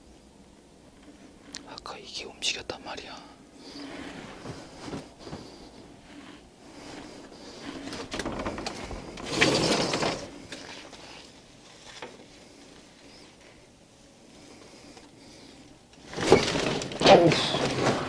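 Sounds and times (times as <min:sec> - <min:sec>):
window scraping along track: 0:03.6 - 0:11.4, 0:14.4 - 0:18.0
window clicks and rattles: 0:07.8 - 0:10.9, 0:16.0 - 0:18.0.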